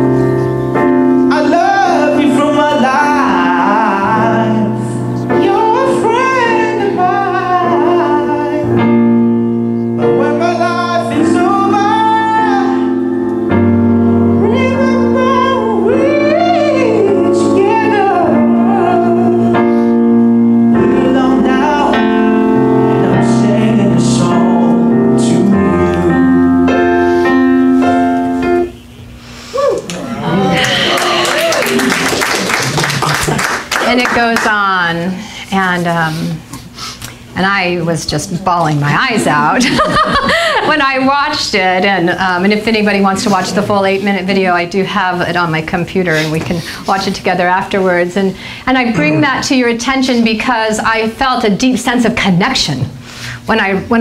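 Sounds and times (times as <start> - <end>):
piano chords: 0.0 - 29.3, 30.0 - 35.3, 37.4 - 52.9
young man singing: 1.2 - 9.0, 10.0 - 13.1, 14.3 - 19.6, 20.7 - 26.6.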